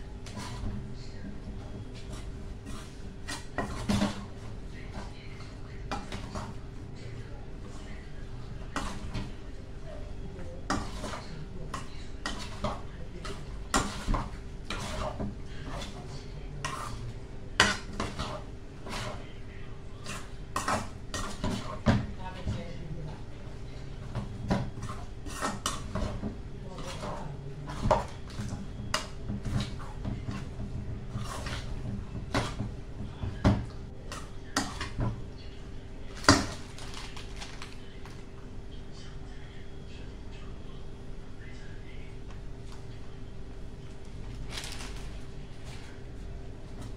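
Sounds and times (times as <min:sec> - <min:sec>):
utensil scraping metal saucepan: 0:10.6 - 0:19.3, 0:24.4 - 0:32.6
metal utensil scraping a pot: 0:16.6 - 0:17.0, 0:24.8 - 0:26.2.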